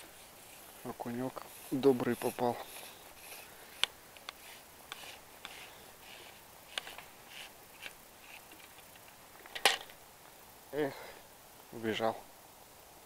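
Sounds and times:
soft rustles: 0.0s - 9.5s
faint hiss: 0.0s - 13.0s.

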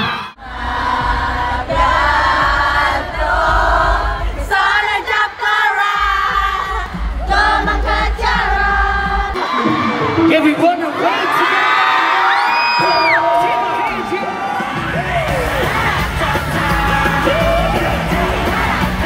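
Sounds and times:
audience singing along: 0.0s - 10.3s, 13.7s - 19.0s
music bass from speakers: 14.8s - 19.0s.

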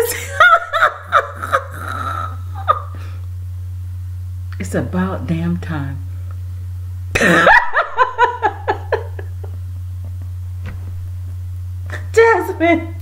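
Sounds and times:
woman laughing: 0.0s - 3.0s, 7.2s - 9.6s, 11.9s - 12.1s
low steady hum: 0.0s - 13.0s.

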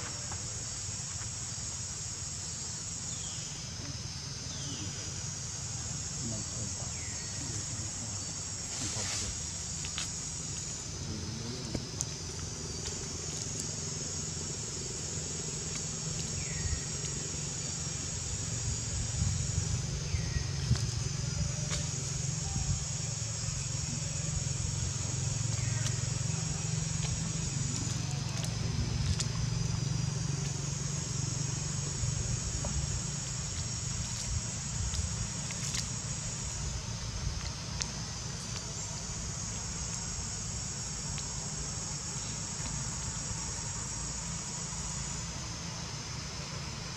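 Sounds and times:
insects droning: 0.0s - 46.9s
low steady rumble: 9.4s - 46.9s.

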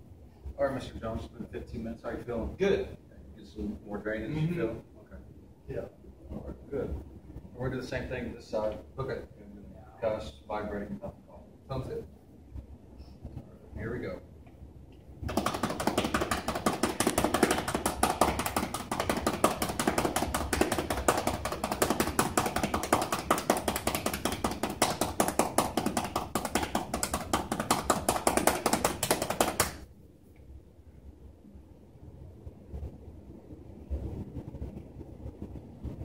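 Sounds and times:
cupped hands clapping on bare back: 15.2s - 29.8s.

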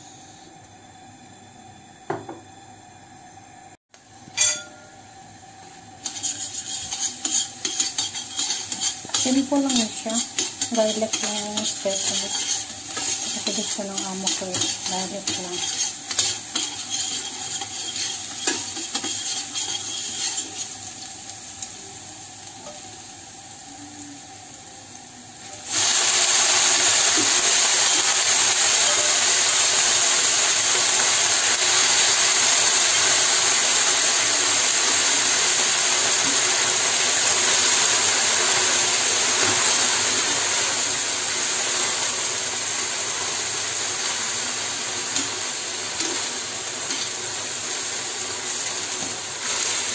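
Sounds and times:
greens frying with loud hiss: 0.0s - 4.1s, 5.0s - 49.9s
garlic sizzling in oil: 4.0s - 49.9s
tongs scraping a pan: 6.0s - 20.8s.

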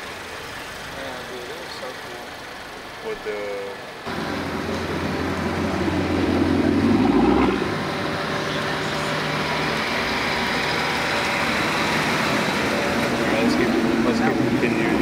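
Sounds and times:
cars passing slowly: 0.0s - 15.0s
road hiss: 0.0s - 15.0s
deep engine hum: 4.1s - 15.0s.

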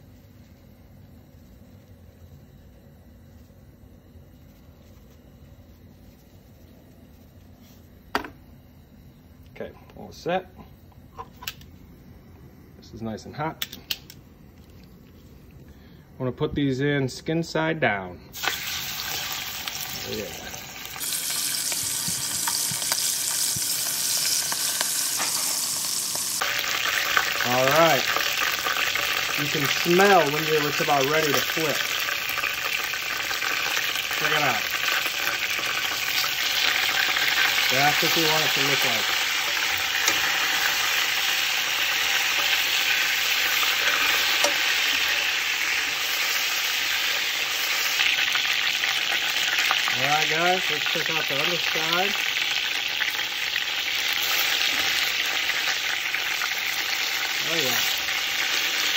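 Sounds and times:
chicken sizzling in hot oil: 18.3s - 58.9s
oil popping and crackling: 18.4s - 58.9s.

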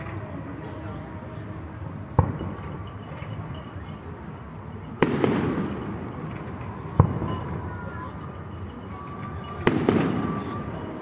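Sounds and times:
fireworks exploding: 5.0s - 7.7s, 9.6s - 10.8s.

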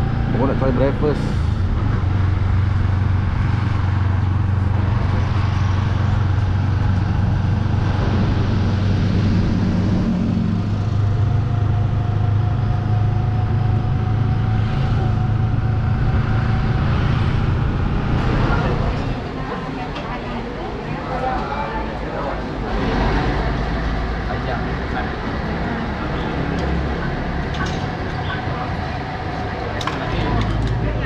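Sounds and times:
road noise: 0.0s - 31.0s.

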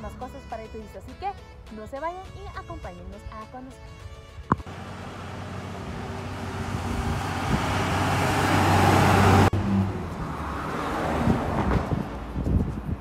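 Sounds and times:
road vehicle noise: 2.3s - 13.0s
traffic noise: 4.5s - 13.0s.

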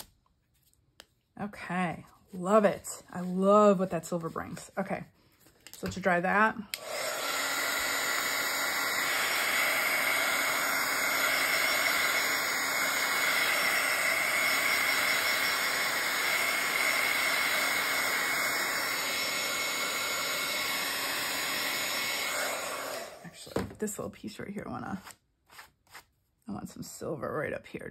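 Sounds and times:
heat tool blowing air: 6.7s - 23.3s.

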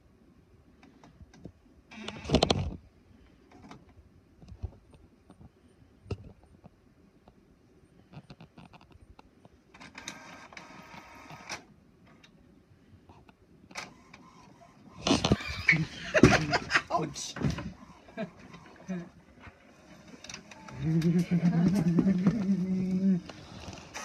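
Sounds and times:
printer mechanism whirring: 9.8s - 11.6s, 17.4s - 24.0s.

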